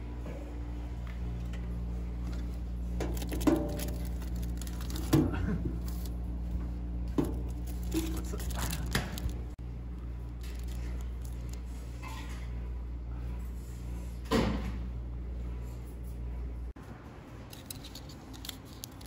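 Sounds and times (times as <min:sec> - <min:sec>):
steady low hum: 0:00.0 - 0:19.0
aluminium foil rustling: 0:02.4 - 0:06.4, 0:07.2 - 0:09.6, 0:10.3 - 0:11.8, 0:17.5 - 0:19.0.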